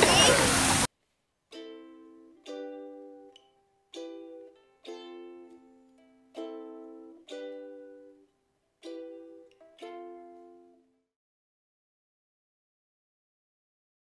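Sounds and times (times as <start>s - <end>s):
strummed ukulele chords: 1.5s - 11.0s.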